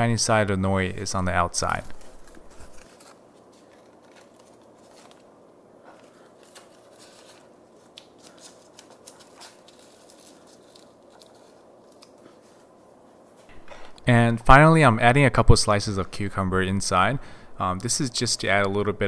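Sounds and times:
dry seaweed crackling: 0:02.0 - 0:12.3.

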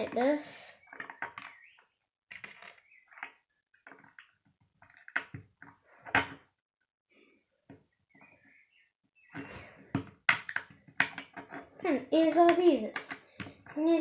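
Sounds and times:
plastic bricks clicking together: 0:02.3 - 0:06.3, 0:10.0 - 0:11.6, 0:12.5 - 0:13.8.

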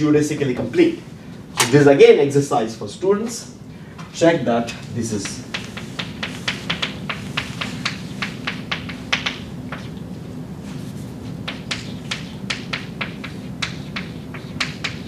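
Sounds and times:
chalk tapping and scratching: 0:05.2 - 0:10.0, 0:10.6 - 0:15.0.

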